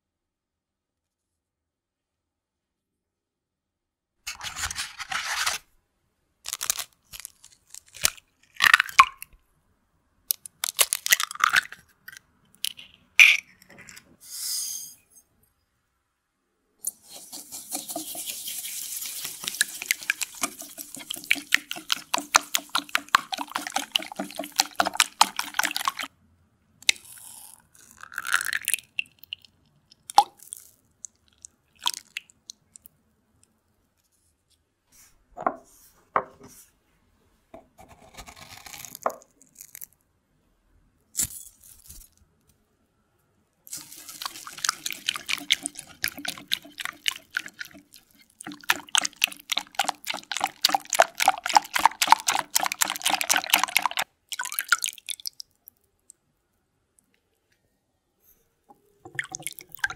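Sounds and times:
whisk beating in glass bowl: 0:17.0 - 0:26.1, 0:43.8 - 0:54.0.

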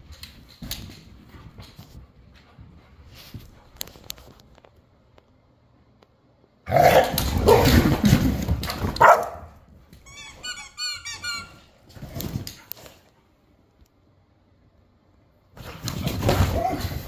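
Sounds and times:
dogs barking: 0:09.0 - 0:09.6
high squeaks: 0:10.0 - 0:11.8.

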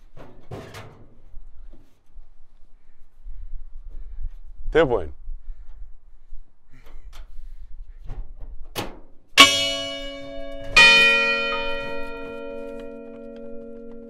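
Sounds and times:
large bells ringing: 0:09.4 - 0:14.0.

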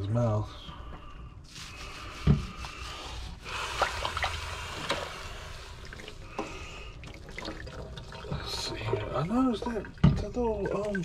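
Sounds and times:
water sloshing and dripping in sink: 0:03.5 - 0:11.0
small splashes: 0:03.7 - 0:11.0.

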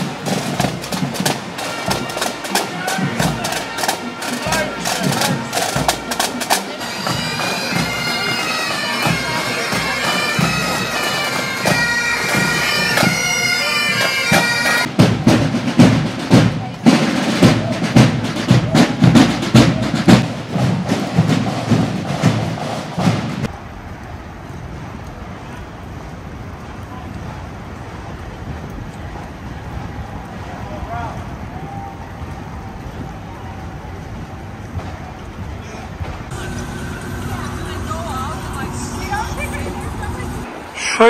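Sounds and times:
drums beating: 0:00.0 - 0:23.5, 0:36.0 - 0:41.0
bagpipes playing melody: 0:03.4 - 0:14.9, 0:36.3 - 0:41.0.

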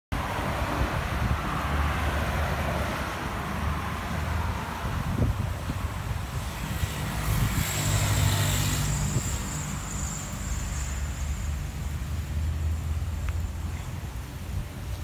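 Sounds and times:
wind buffeting microphone: 0:03.3 - 0:09.8.

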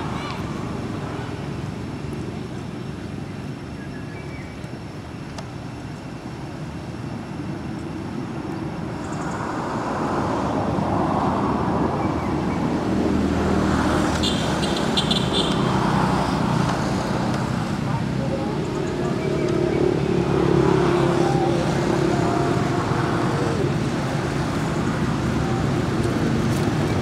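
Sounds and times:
vehicle engine rumbling: 0:10.4 - 0:27.0.

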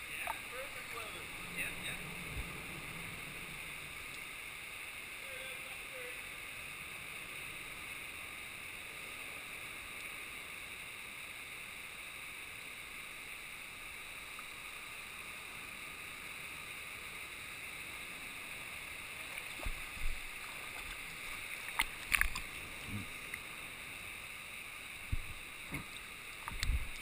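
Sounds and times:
river water rushing and gurgling: 0:00.0 - 0:27.0
water splashing thumps: 0:19.4 - 0:22.5, 0:25.1 - 0:27.0.

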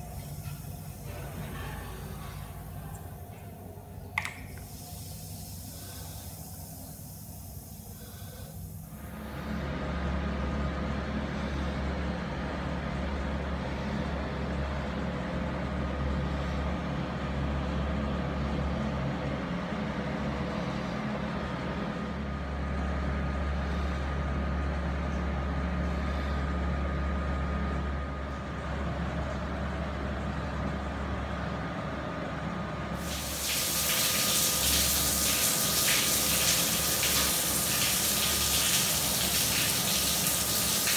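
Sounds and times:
low steady hum: 0:00.0 - 0:40.9
shower head spraying water: 0:33.0 - 0:40.9.

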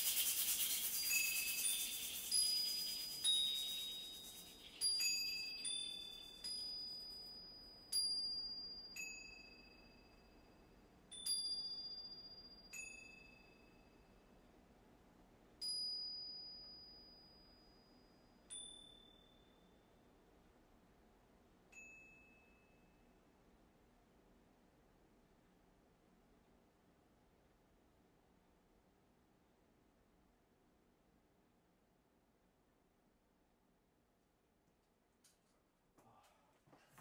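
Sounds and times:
wind bell tinkling: 0:00.8 - 0:14.1, 0:15.6 - 0:19.9, 0:21.7 - 0:23.1.

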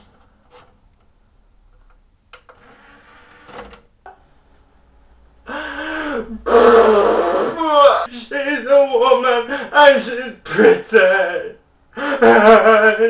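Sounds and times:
man wailing and sobbing: 0:05.5 - 0:13.0.

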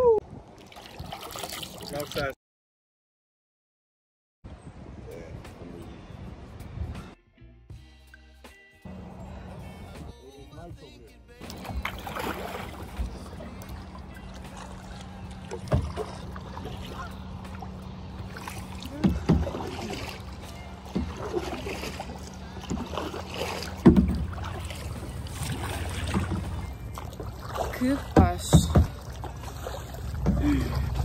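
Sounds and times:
water moving along hull: 0:00.0 - 0:02.4, 0:08.9 - 0:10.2, 0:11.4 - 0:31.0
kayak paddles dipping in water: 0:00.5 - 0:02.2, 0:11.4 - 0:31.0
dull thumps: 0:23.7 - 0:24.4, 0:28.1 - 0:29.1.

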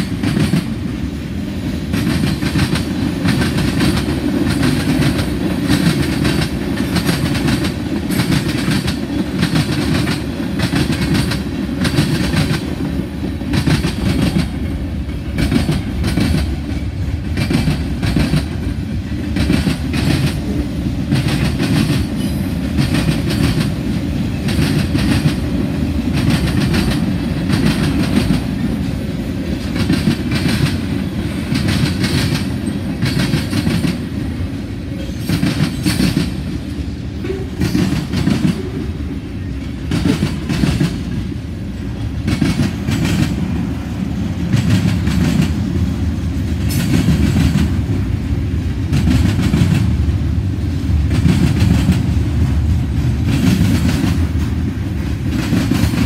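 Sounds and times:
train wheels rumbling on rail: 0:00.0 - 0:56.0
wheels clacking over rail joints: 0:01.8 - 0:28.7, 0:29.5 - 0:34.2.

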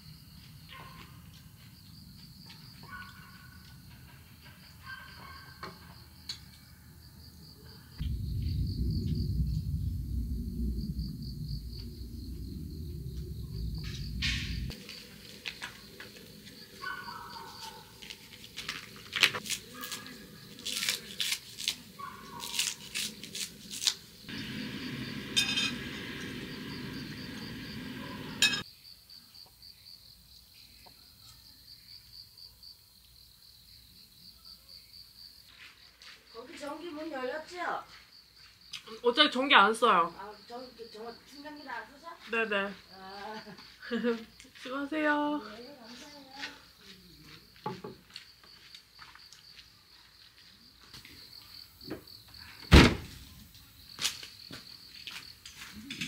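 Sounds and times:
crickets chirping: 0:00.0 - 0:56.0
low rumble: 0:08.0 - 0:14.8, 0:24.3 - 0:28.4.

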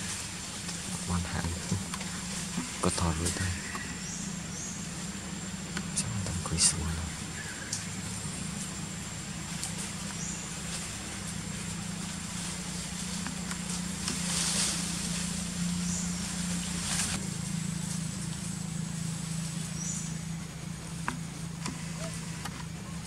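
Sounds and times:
faint high whine: 0:00.0 - 0:23.0
low motor hum: 0:00.0 - 0:23.0
outdoor ambience: 0:00.0 - 0:23.0
rustling: 0:07.2 - 0:23.0.

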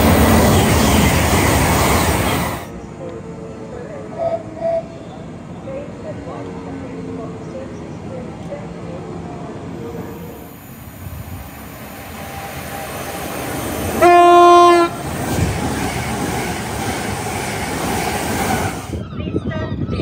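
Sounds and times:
train rumble and wheel clatter: 0:00.0 - 0:20.0
train horn blast: 0:13.9 - 0:15.0.

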